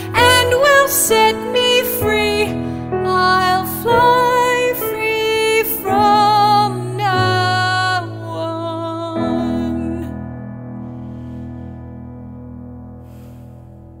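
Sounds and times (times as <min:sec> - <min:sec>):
woman singing a ballad: 0:00.0 - 0:10.4
grand piano: 0:00.0 - 0:14.0.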